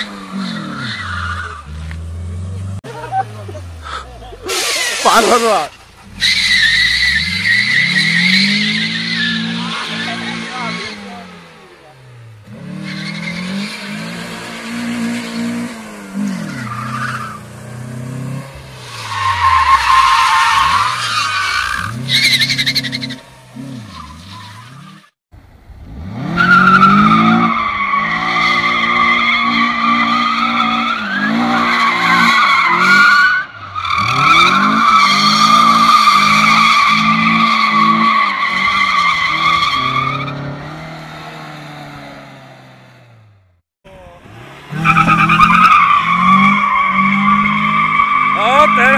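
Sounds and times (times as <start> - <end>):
car engine revving: 0.0 - 48.9
tyres squealing: 44.7 - 48.9.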